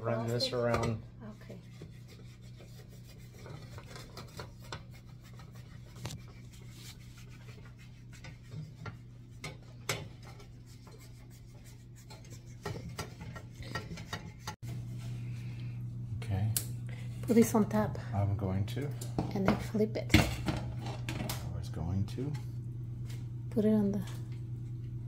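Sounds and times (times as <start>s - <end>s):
steady low hum: 0.0s - 25.0s
utensil scraping a metal pan: 0.2s - 14.6s.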